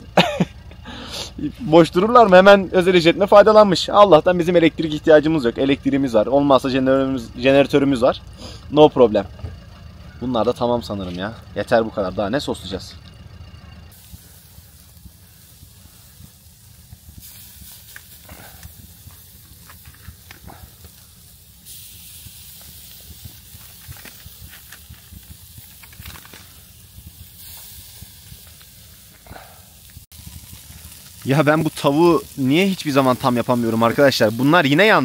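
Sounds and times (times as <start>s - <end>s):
chicken sizzling over charcoal: 0.0s - 35.0s
faint crackles: 12.9s - 35.0s.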